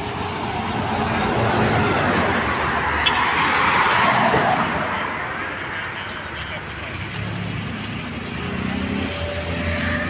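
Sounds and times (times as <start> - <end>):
road traffic passing: 0.0 - 10.0.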